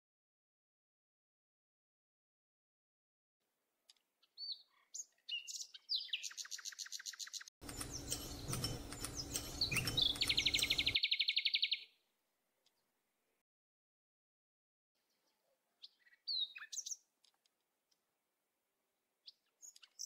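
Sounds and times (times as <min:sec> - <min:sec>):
small songbirds chirping: 0:03.9 - 0:12.0, 0:15.0 - 0:17.5, 0:19.2 - 0:20.0.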